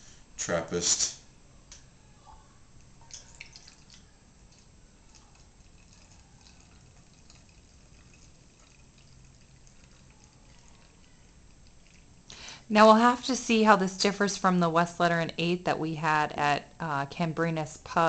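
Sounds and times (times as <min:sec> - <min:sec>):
beer trickling into a glass: 0:02.8 - 0:12.6.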